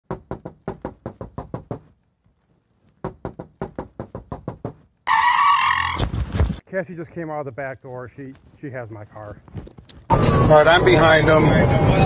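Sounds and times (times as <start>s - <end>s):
rapid knocking on a door: 0.0s - 1.9s, 3.0s - 4.9s.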